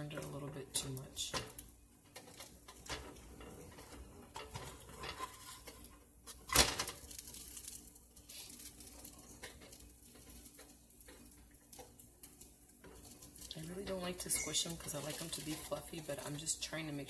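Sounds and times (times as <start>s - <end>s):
plastic spatula scraping frying pan: 2.1s - 11.9s, 12.8s - 16.3s.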